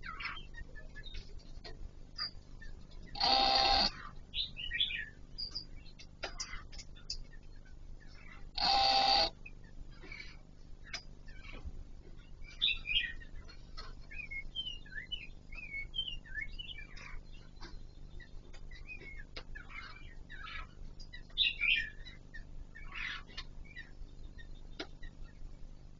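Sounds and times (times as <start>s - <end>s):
laughingthrush calling: 3.1s - 4.2s, 8.2s - 11.6s.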